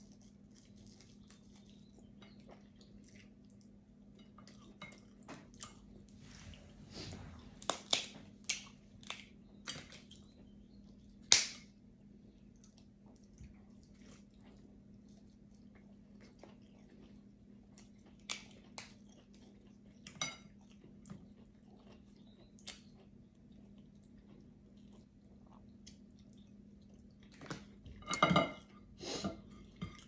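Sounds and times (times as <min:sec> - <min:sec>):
chewing: 0:00.0 - 0:11.1, 0:12.3 - 0:28.0
crab shells cracking by hand: 0:07.6 - 0:10.1, 0:11.3 - 0:11.7.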